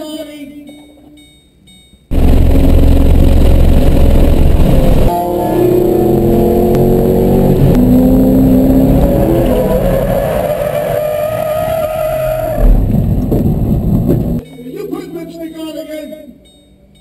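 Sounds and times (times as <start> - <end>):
car engine revving: 2.1 - 14.4
loud thump: 12.6 - 14.4.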